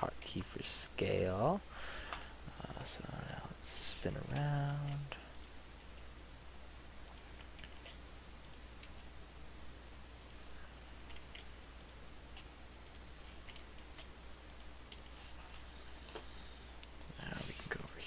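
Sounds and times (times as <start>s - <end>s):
low steady hum: 0.0s - 18.0s
keyboard and mouse clicks: 7.0s - 9.0s, 11.0s - 16.2s.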